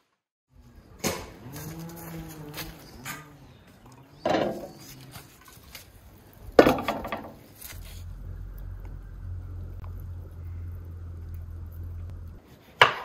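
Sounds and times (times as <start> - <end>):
low rumble: 7.5 - 12.4.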